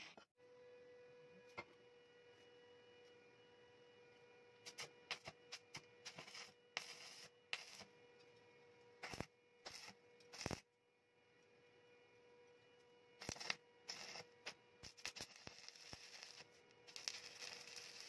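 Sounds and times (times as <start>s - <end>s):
welding arc crackling: 4.7s - 7.9s, 9.0s - 10.7s, 13.2s - 18.0s.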